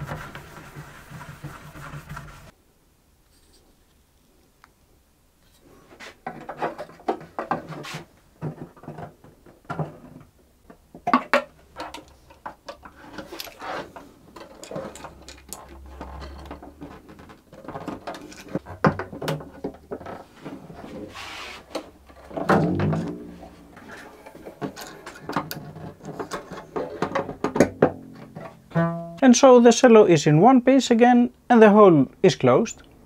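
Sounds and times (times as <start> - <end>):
string rattles: 11.8 - 20.8, 22.0 - 29.2.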